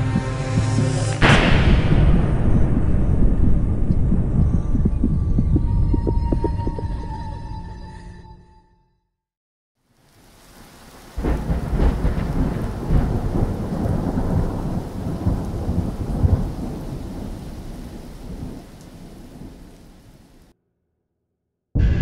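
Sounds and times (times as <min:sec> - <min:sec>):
thunderclap: 0:00.0 - 0:06.8, 0:10.9 - 0:20.5
rolling thunder: 0:01.2 - 0:06.5, 0:10.9 - 0:20.5
steady rain: 0:09.8 - 0:20.5.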